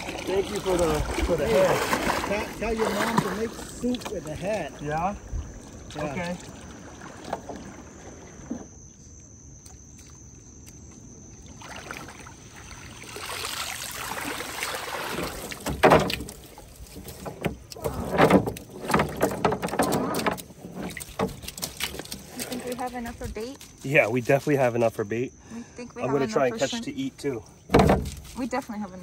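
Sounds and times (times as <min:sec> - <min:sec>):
loud knocks and splashes: 0:00.0 - 0:04.7, 0:11.5 - 0:23.8, 0:27.7 - 0:28.4
water streaming off net: 0:00.0 - 0:08.6, 0:11.5 - 0:23.2.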